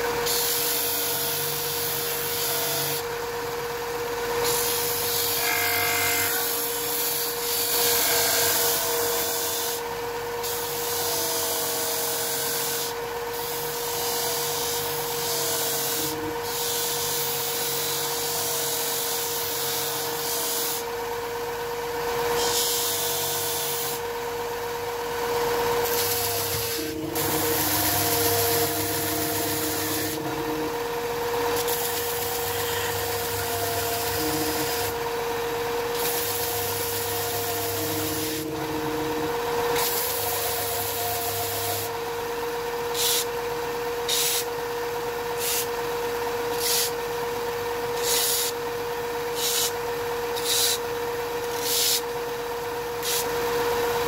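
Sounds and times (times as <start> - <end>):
sander motor hum: 22.8 - 43.0
wood rasping on abrasive: 25.8 - 30.8, 31.5 - 35.1, 35.9 - 41.9.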